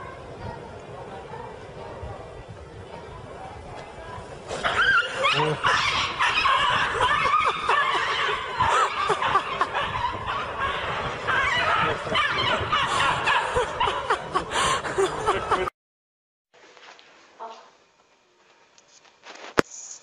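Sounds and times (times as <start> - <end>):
people laughing: 5.0 - 15.7.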